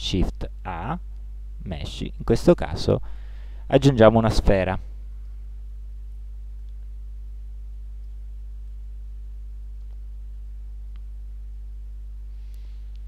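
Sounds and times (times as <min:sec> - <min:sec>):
electrical mains hum: 0:00.0 - 0:13.0
faint clicks: 0:06.6 - 0:06.9, 0:09.8 - 0:10.0.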